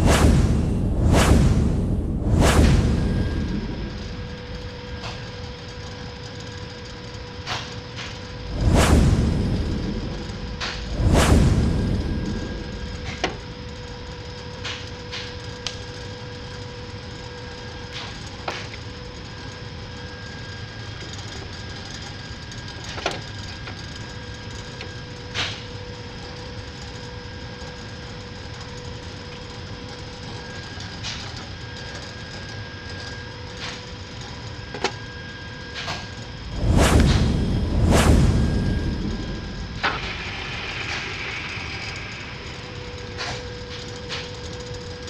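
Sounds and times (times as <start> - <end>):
steady machine hum: 0.0 - 45.0.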